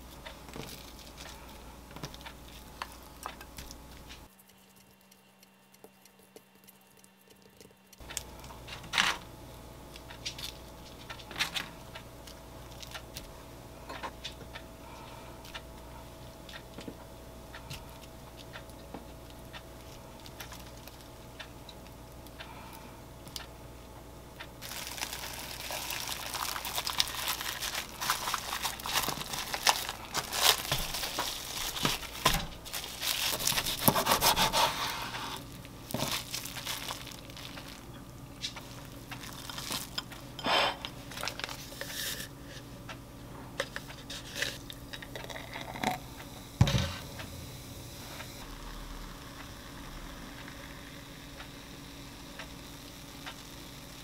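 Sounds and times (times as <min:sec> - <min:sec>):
low steady hum: 0:00.0 - 0:54.0
cling film crinkling: 0:00.1 - 0:05.0, 0:24.6 - 0:40.2, 0:40.9 - 0:42.3
knife cutting on wooden board: 0:33.7 - 0:35.1.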